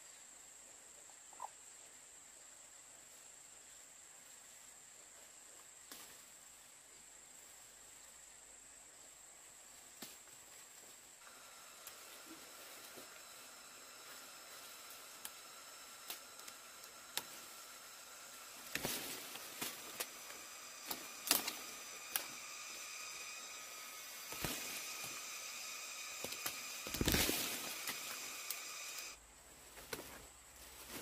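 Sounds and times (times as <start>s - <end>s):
high-pitched drone: 11.5s - 29.2s
fruit snapping off branches: 18.6s - 23.2s, 25.9s - 29.0s.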